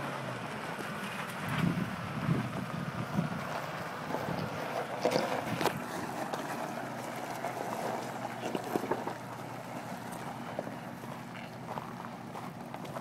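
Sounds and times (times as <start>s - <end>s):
wind on microphone: 1.5s - 3.5s
footsteps crunching on gravel: 4.1s - 13.0s.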